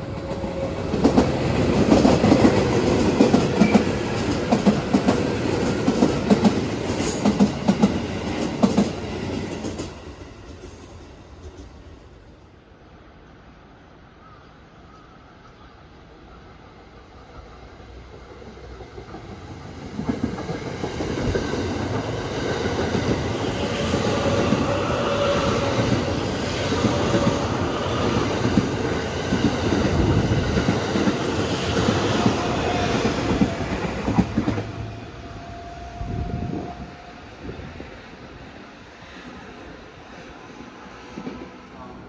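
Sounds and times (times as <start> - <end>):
train passing rumble: 0.0 - 14.2, 14.8 - 42.0.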